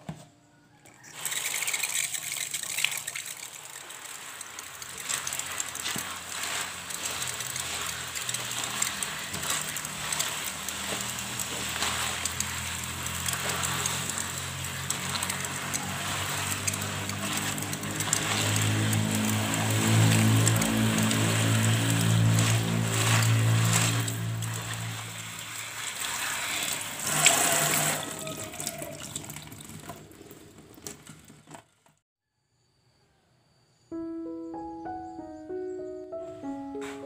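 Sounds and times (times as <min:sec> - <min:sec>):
tap water running into sink: 0:01.1 - 0:31.1
hands swishing wet leaves: 0:01.2 - 0:29.4.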